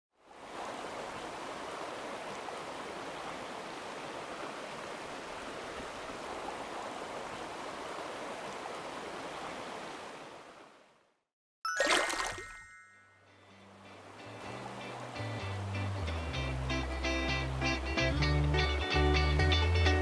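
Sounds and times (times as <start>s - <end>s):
stream rushing over stones: 0.3s - 10.9s, 11.7s - 12.9s.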